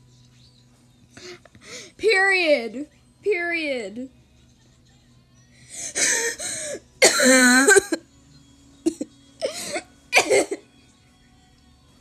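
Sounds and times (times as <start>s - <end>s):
person coughing hard: 7.0s - 8.0s, 8.9s - 10.6s.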